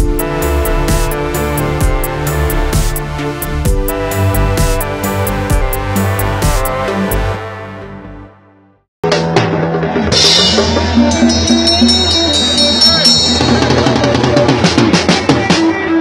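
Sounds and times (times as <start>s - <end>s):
drum kit playing: 0.0s - 7.4s, 9.0s - 16.0s.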